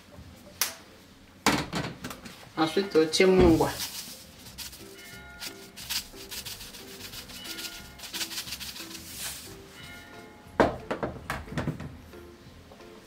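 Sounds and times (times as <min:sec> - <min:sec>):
soft background music: 0:00.0 - 0:13.0
spice jar rattling shakes: 0:03.6 - 0:09.6.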